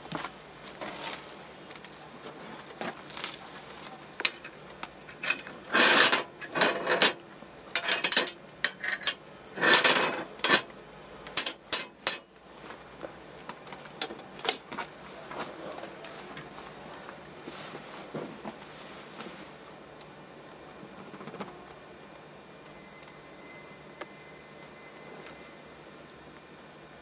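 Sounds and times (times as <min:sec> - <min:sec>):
small objects clinking and scraping: 0:00.7 - 0:07.2, 0:07.8 - 0:10.7.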